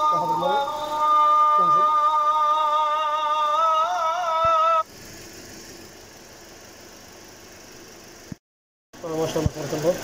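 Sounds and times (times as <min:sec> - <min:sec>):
wavering sung note: 0:00.0 - 0:04.8
car engine idling: 0:00.0 - 0:08.4, 0:09.0 - 0:10.0.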